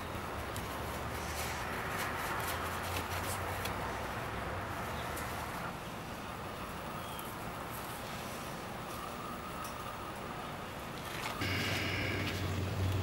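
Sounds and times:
low rumble with hiss: 0:00.0 - 0:13.0.

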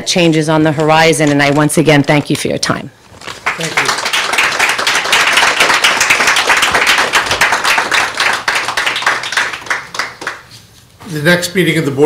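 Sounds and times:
audience applauding: 0:03.3 - 0:10.5.

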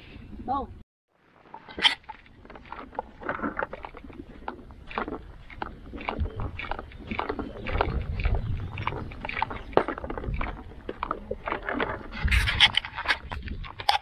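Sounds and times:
kayak rattling and knocking: 0:01.4 - 0:14.0
low microphone rumble: 0:02.7 - 0:13.8.

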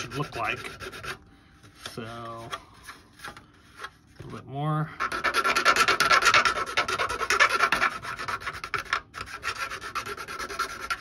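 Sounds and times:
file rasping on plastic: 0:00.0 - 0:01.2, 0:05.0 - 0:11.0.

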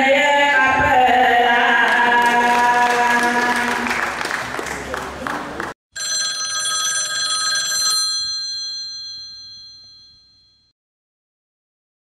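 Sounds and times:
woman singing: 0:00.0 - 0:03.9
bell ringing: 0:06.0 - 0:10.7.

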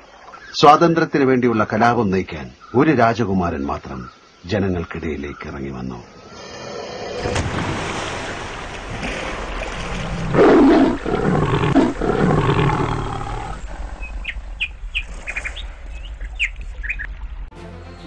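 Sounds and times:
birds chirping: 0:00.0 - 0:07.2, 0:09.9 - 0:17.5
big cat roaring: 0:09.9 - 0:14.0.

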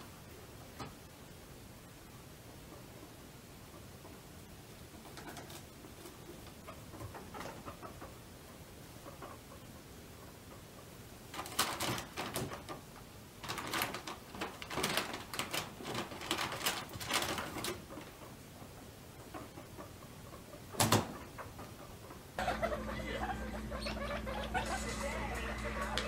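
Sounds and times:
guinea pigs rustling in bedding: 0:11.3 - 0:18.4, 0:22.4 - 0:26.0.

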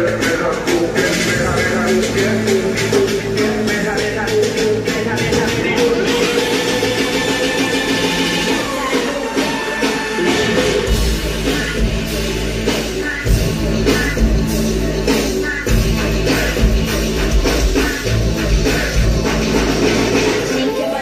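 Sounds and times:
bass: 0:00.0 - 0:20.7
drum kit: 0:00.0 - 0:21.0
keyboards: 0:00.0 - 0:21.0.

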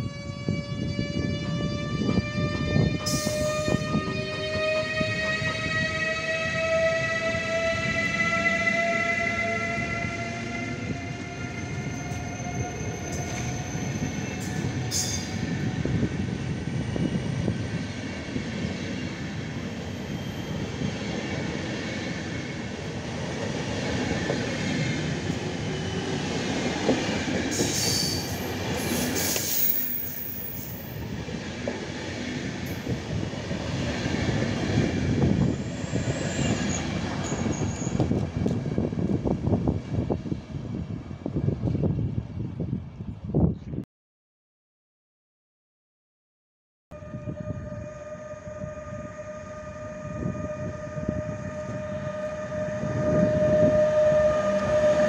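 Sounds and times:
electric locomotive whine: 0:00.0 - 0:43.5, 0:47.0 - 0:55.0
train wheels rumbling on rails: 0:00.5 - 0:43.4
high wheel squeal: 0:08.0 - 0:15.5, 0:19.8 - 0:20.8, 0:27.5 - 0:30.9, 0:35.8 - 0:38.1.

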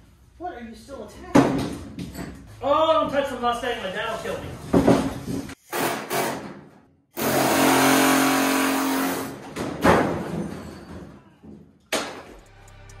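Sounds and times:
pneumatic tool whining: 0:07.2 - 0:09.4.

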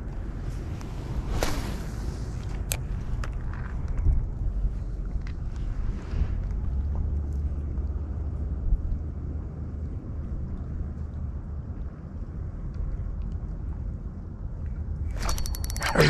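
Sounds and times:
rustling swish: 0:00.4 - 0:02.5
small clicks: 0:15.1 - 0:16.0.

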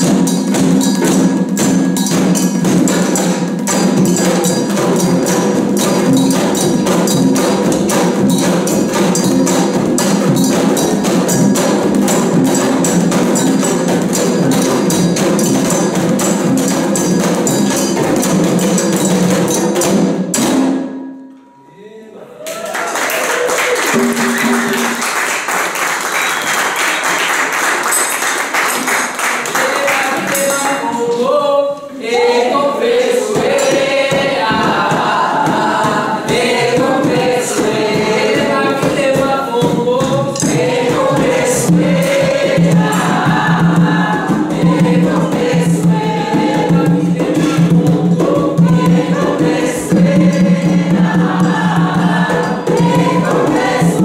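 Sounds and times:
group singing in chorus: 0:00.0 - 0:20.1, 0:28.7 - 0:54.0
hand drums: 0:00.0 - 0:21.6, 0:23.1 - 0:31.0, 0:32.2 - 0:54.0.

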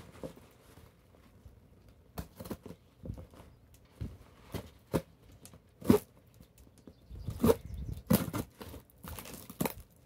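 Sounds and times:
cardboard rustling: 0:00.0 - 0:06.6
knife cutting cardboard box: 0:07.3 - 0:09.9.

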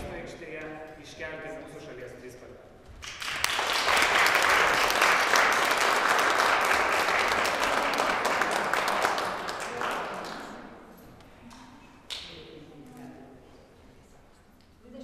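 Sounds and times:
audience applauding: 0:03.0 - 0:10.7.

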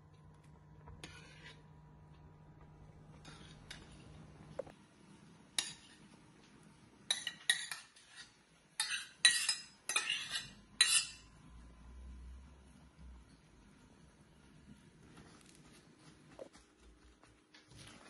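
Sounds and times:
metal spoon scraping a saucepan: 0:01.0 - 0:01.7, 0:03.1 - 0:04.2, 0:07.1 - 0:11.3.

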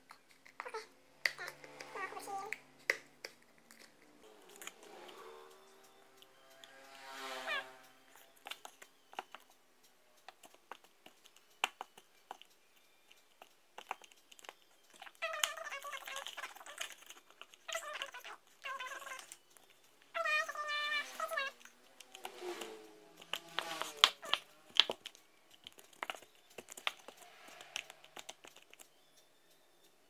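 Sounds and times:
high wavering cries: 0:04.2 - 0:09.6, 0:14.5 - 0:30.0.

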